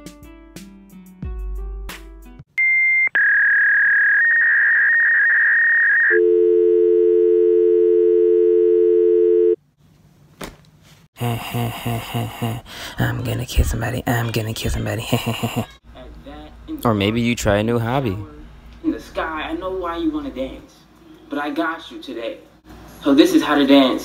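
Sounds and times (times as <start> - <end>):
high electronic telephone tone: 2.6 - 9.6
low dial tone: 6.1 - 9.6.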